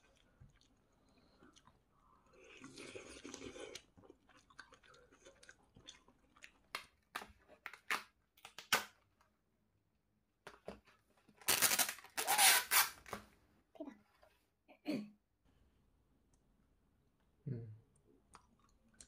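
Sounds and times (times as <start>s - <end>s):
crunchy food being chewed: 0.0s - 7.8s, 18.3s - 19.0s.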